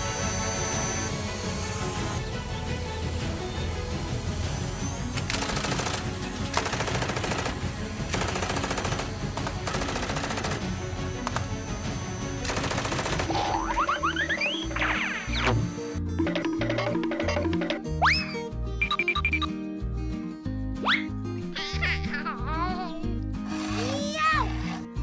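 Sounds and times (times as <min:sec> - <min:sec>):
background music: 0:00.0 - 0:25.0
rapid rattling bursts: 0:05.3 - 0:11.7, 0:12.3 - 0:13.7.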